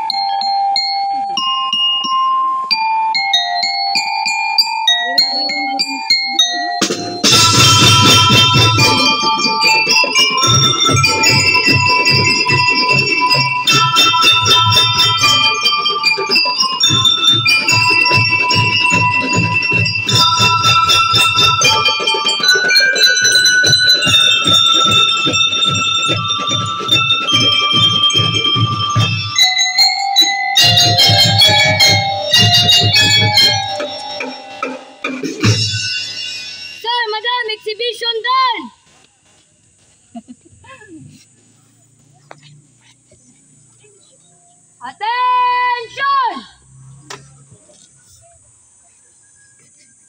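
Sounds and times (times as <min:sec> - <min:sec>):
bell lyres melody: 0:00.0 - 0:37.8
fast snare drumming: 0:06.8 - 0:29.5, 0:30.6 - 0:35.7
bass drum beats: 0:06.8 - 0:30.0, 0:30.6 - 0:36.0.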